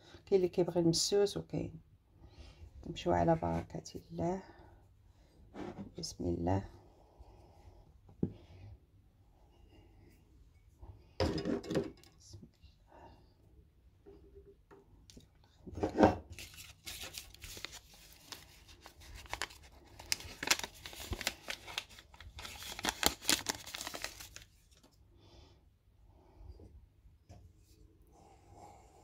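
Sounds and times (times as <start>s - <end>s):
paper crinkling and rustling: 16.3s - 25.0s
paper sachet tearing: 16.4s - 24.8s.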